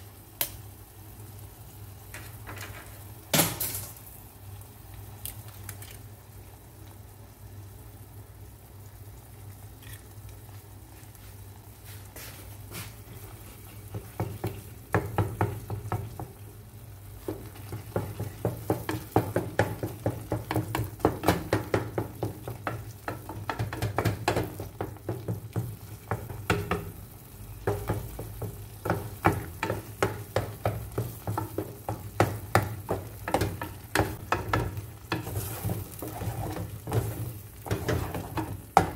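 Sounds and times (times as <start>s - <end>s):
food sizzling in oil: 0.0s - 38.9s
wooden spatula scraping pan: 12.1s - 15.6s, 28.0s - 38.9s.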